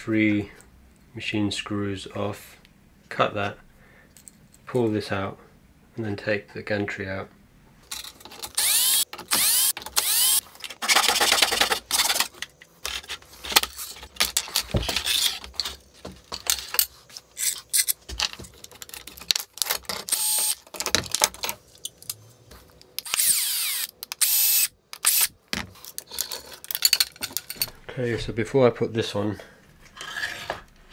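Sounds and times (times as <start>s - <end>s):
drill-driver motor whine: 8.6s - 10.4s, 20.1s - 20.6s, 23.0s - 25.3s
clinks of screws and metal parts: 25.8s - 27.8s.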